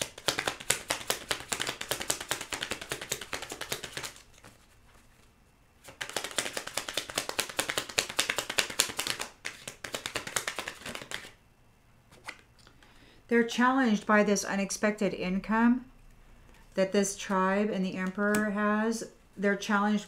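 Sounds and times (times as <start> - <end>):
cards being shuffled: 0.0 - 11.4, 12.1 - 12.8.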